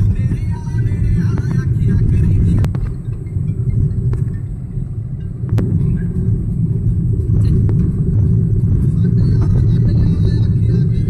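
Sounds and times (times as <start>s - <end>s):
tyres rumbling on dirt road: 0.0s - 11.0s.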